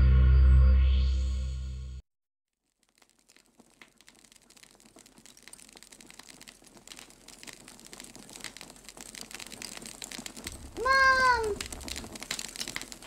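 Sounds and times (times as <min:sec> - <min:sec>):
dense irregular crackling: 0:02.6 - 0:13.0.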